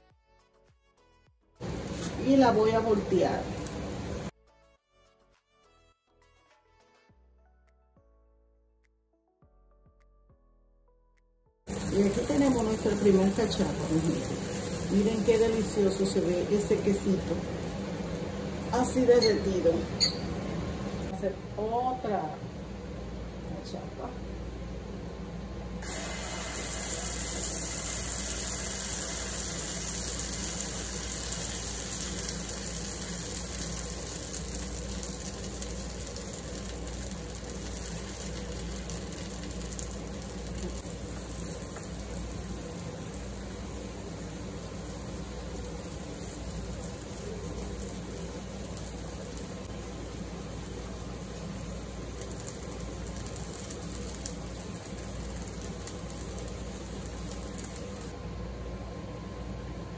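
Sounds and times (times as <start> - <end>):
batter sizzling in hot oil: 1.6 - 4.4, 11.7 - 21.1, 25.8 - 58.2.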